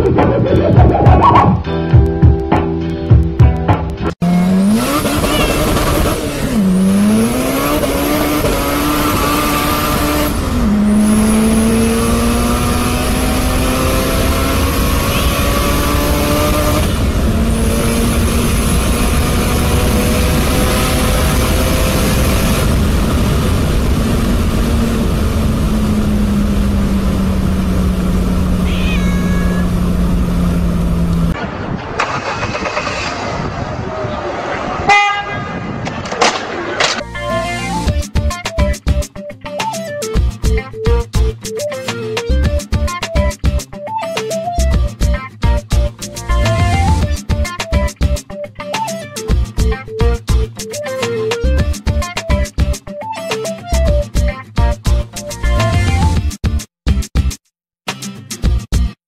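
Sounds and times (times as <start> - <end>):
road rumble: 0.0 - 38.3, 45.7 - 47.5
cat yowling: 5.1 - 5.8, 15.0 - 15.6, 28.6 - 30.0.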